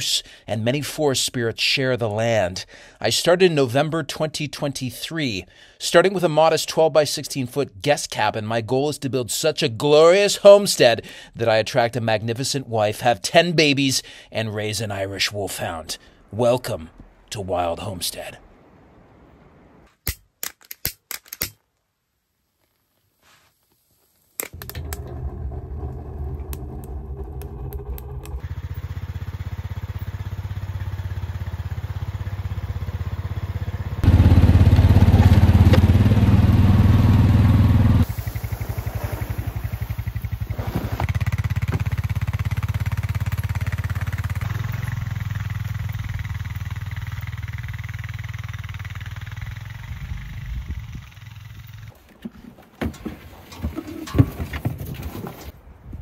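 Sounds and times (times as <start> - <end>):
atv engine running: 24.6 - 52.0.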